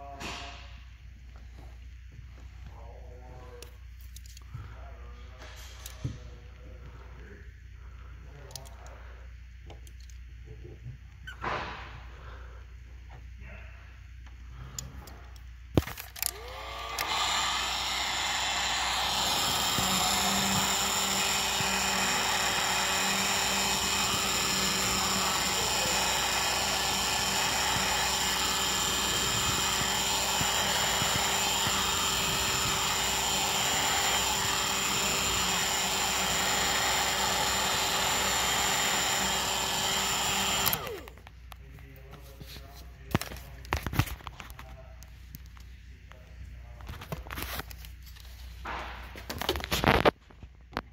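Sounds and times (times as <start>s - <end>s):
heat gun fan rushing air: 15.8s - 41.2s.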